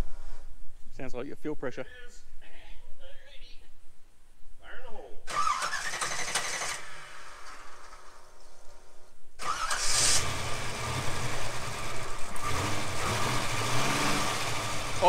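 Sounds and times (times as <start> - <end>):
car engine starting and idling: 5.3 - 15.0.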